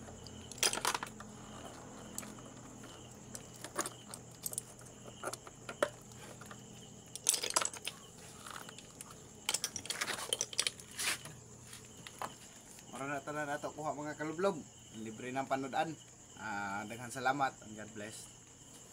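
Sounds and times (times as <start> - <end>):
shells clinking and rattling: 0.2 - 2.3, 7.0 - 11.0.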